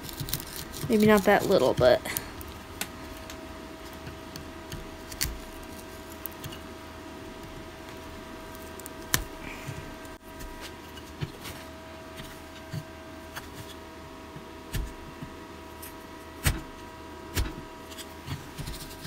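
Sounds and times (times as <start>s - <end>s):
wood chips snapping: 0.0s - 6.7s, 7.4s - 10.2s.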